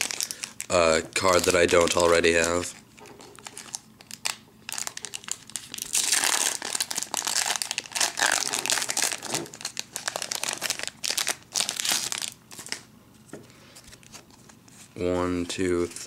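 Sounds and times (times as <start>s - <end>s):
foil wrapper crinkling and tearing: 0.0s - 12.8s.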